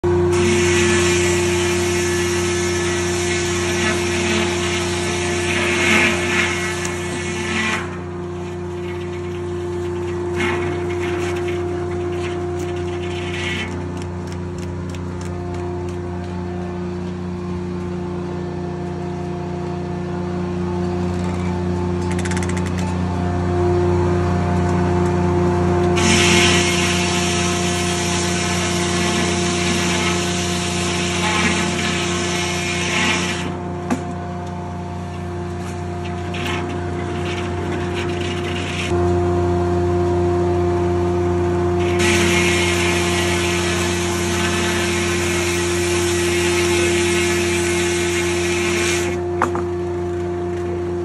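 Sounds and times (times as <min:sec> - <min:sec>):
circular saw cutting log: 0:00.0 - 0:14.4, 0:26.0 - 0:34.0, 0:35.1 - 0:39.0, 0:41.8 - 0:49.6
sawmill humming: 0:00.0 - 0:51.0.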